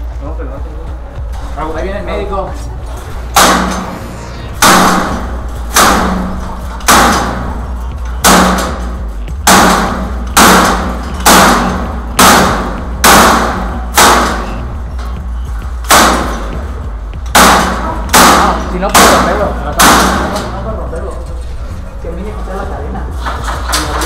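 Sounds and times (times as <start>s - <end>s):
hammer on metal gate frame: 4.6s - 15.2s, 15.8s - 20.6s.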